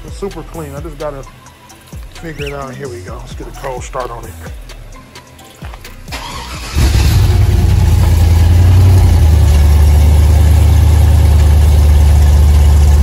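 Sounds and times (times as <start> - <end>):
car engine idling: 5.8 - 13.0.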